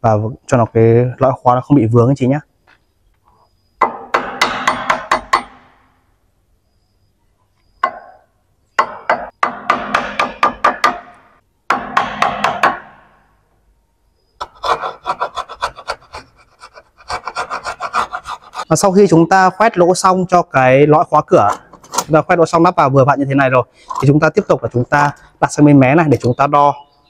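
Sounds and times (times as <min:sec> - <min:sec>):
hammer striking wood chisel: 0:03.8 - 0:05.7, 0:07.8 - 0:08.2, 0:08.8 - 0:13.2
hand tool scraping wood: 0:14.4 - 0:18.7, 0:21.4 - 0:22.2.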